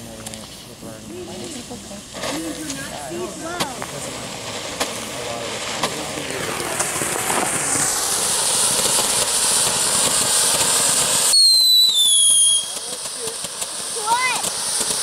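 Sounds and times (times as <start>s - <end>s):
firework fountain crackly hiss: 0.0s - 15.0s
high falling whistle: 11.3s - 12.9s.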